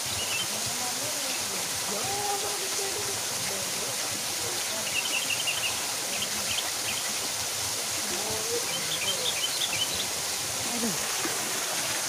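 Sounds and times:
bird chirping: 0.0s - 0.5s, 4.7s - 7.1s, 8.5s - 10.2s
waterfall splashing into a pool: 0.0s - 12.0s.

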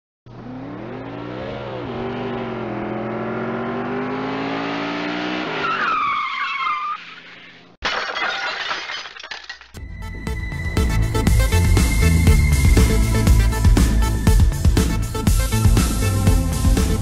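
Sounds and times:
engine revving: 0.3s - 5.6s.

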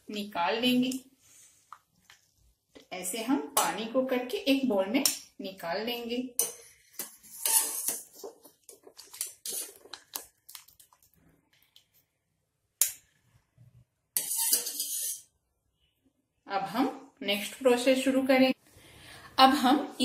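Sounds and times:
strainer scraping pot: 7.2s - 9.9s, 14.2s - 15.3s.

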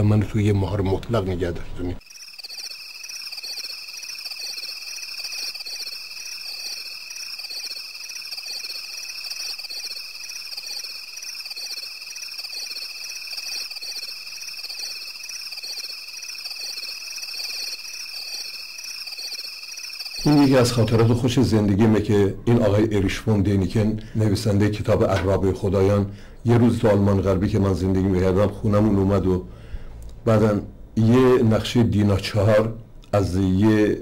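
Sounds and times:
chorus of frogs or insects: 2.0s - 21.4s.

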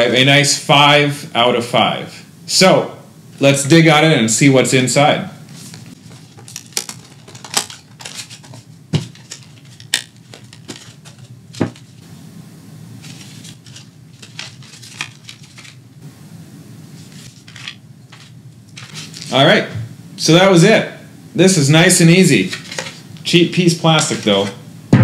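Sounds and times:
plastic packaging snapping: 6.4s - 11.1s.

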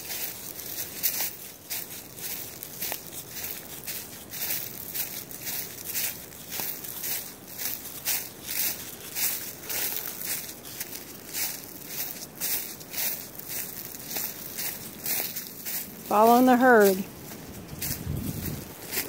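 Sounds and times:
footsteps crunching dry leaves: 0.0s - 19.0s.

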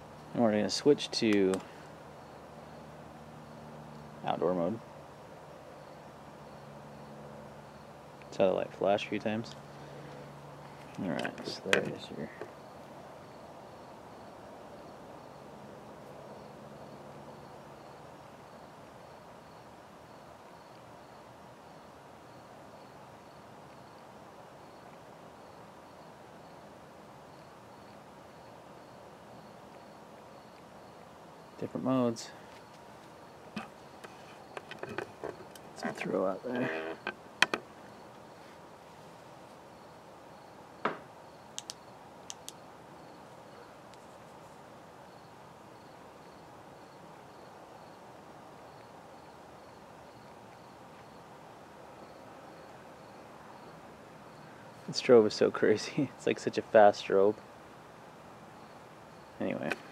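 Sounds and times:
crickets chirping: 0.0s - 59.9s
steady outdoor hiss: 0.0s - 59.9s
sharp clicks: 1.3s - 1.7s, 41.5s - 42.6s
single knock: 40.8s - 41.1s.

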